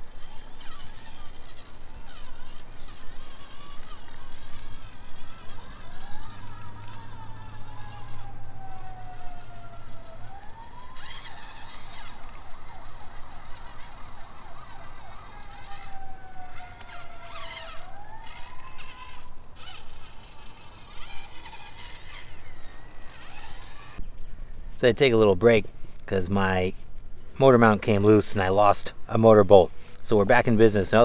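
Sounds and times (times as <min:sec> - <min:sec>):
tyres scrabbling on rock: 0:00.0 - 0:08.8, 0:11.0 - 0:24.0
electric motor whine: 0:00.0 - 0:24.0.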